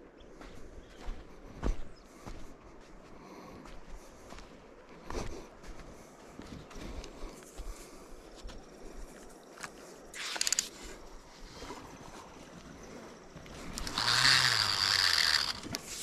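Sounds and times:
fishing reel clicks: 10.2s - 10.8s, 13.7s - 16.0s
fishing reel rasping whirr: 10.2s - 10.8s, 13.6s - 16.0s.

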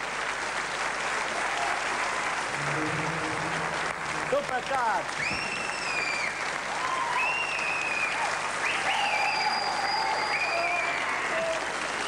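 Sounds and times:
audience applauding: 0.0s - 12.0s
high whistles: 5.2s - 6.4s, 7.0s - 10.8s.

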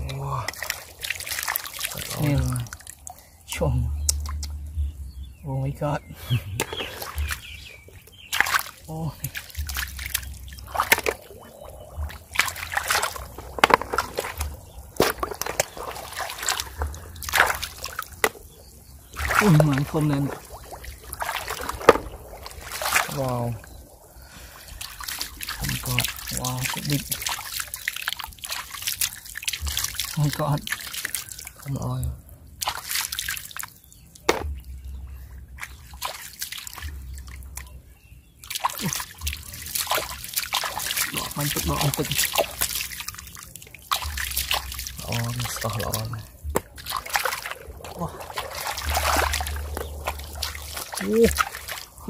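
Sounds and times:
shallow water splashing: 0.0s - 5.0s, 5.8s - 52.0s
sharp knocks of clams: 12.0s - 18.5s, 21.3s - 23.2s, 34.3s - 34.7s.

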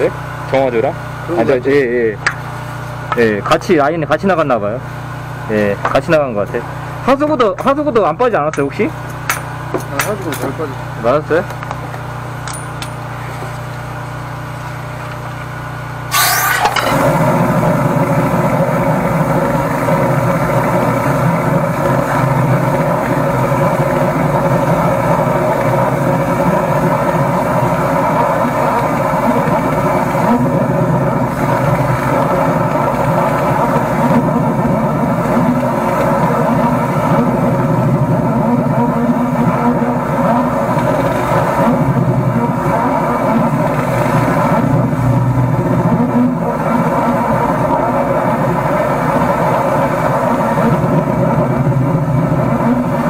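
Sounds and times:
engine running: 0.0s - 53.0s
brief noisy burst: 16.1s - 17.4s.

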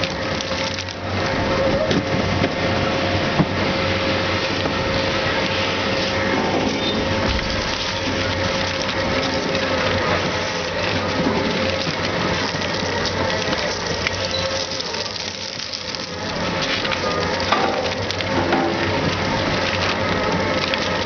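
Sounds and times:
drive motor whine: 0.0s - 21.0s
shredder grinding metal: 0.0s - 21.0s.

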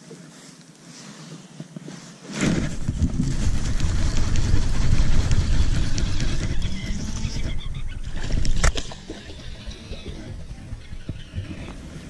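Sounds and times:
wind buffeting microphone: 2.5s - 12.0s.

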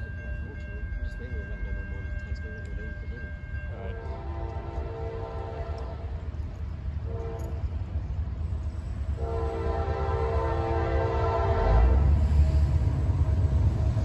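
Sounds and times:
locomotive rumble: 0.0s - 14.0s
locomotive air horn blasts: 4.0s - 6.1s, 7.1s - 7.7s, 9.2s - 12.2s.

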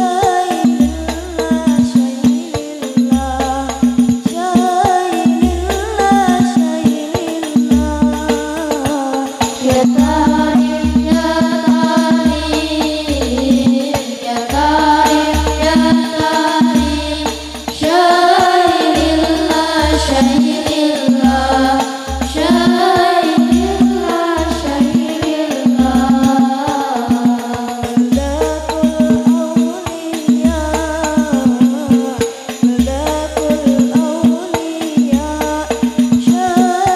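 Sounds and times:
girls singing into microphones: 0.0s - 36.9s
jingling tambourine percussion: 0.0s - 36.9s
low rhythmic beat: 7.6s - 36.9s.

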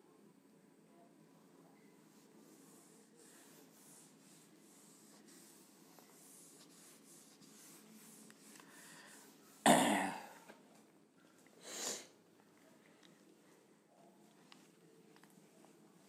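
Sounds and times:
duster rubbing on whiteboard: 2.1s - 9.6s
man coughing: 9.6s - 10.4s.

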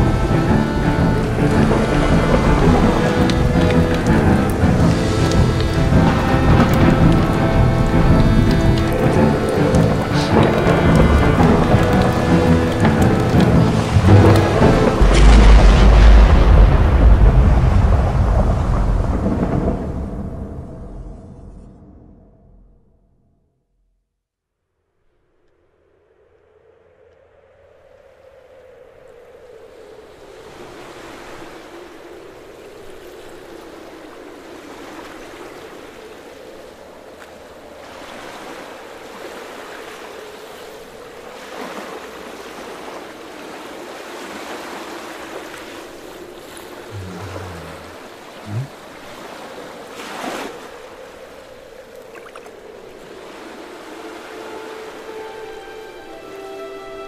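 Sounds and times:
water splash: 0.0s - 20.2s, 37.9s - 51.0s, 51.9s - 55.1s
sea waves washing: 0.0s - 21.2s, 28.3s - 57.0s
low drone: 0.0s - 23.5s, 46.9s - 48.7s.

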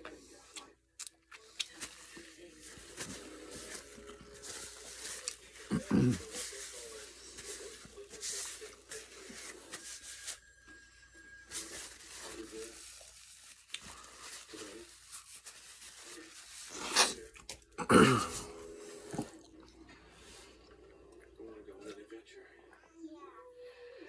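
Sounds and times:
paper napkin rustling: 1.7s - 10.5s, 11.3s - 17.3s.

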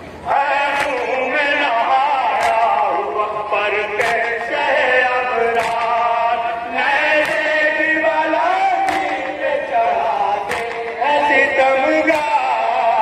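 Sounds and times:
men chanting in unison: 0.2s - 13.0s
chest-beating slaps: 2.4s - 2.6s, 5.5s - 6.0s, 7.2s - 7.5s, 8.8s - 9.3s, 10.5s - 11.0s.

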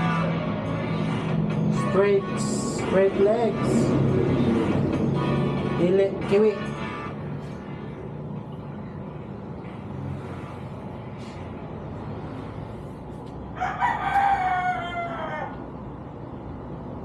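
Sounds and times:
rooster crowing: 13.5s - 15.9s.

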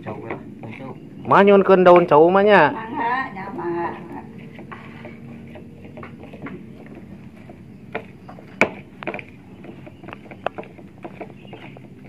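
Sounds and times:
pestle knocking in mortar: 4.5s - 12.0s.

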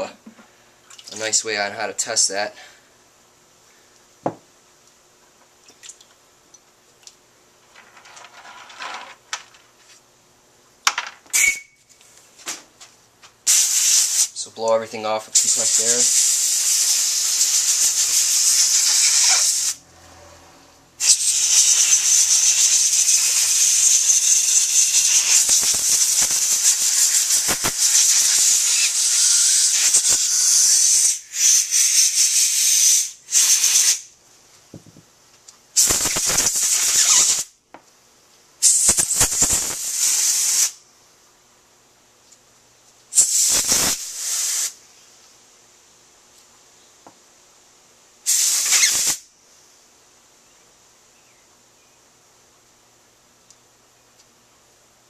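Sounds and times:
compressed air blow gun hissing: 13.5s - 14.4s, 15.4s - 19.8s, 21.0s - 34.1s, 35.8s - 37.5s, 38.6s - 40.8s, 43.1s - 44.8s, 48.2s - 49.3s.

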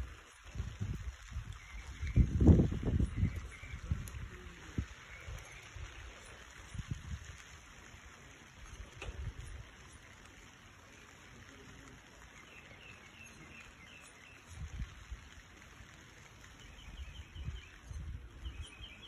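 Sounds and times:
low rumbles on microphone: 0.0s - 6.0s
light rain falling: 0.0s - 19.0s
bird chirping: 12.2s - 14.6s, 16.6s - 19.0s.

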